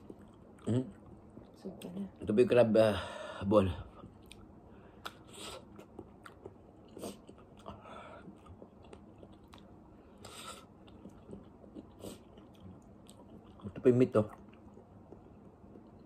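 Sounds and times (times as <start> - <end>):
faint chewing: 0.0 - 2.3, 3.9 - 16.0
mouth smacks and clicks: 4.2 - 16.0.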